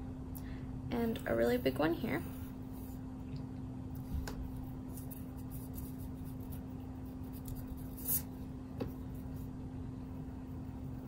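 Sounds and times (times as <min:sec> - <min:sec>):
eraser rubbing on paper: 0:04.9 - 0:08.4
pencil scratching on paper: 0:04.9 - 0:08.4.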